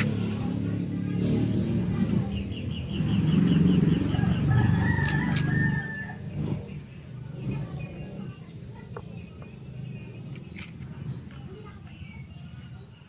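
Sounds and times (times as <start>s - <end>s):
rooster crowing: 4.1s - 6.4s.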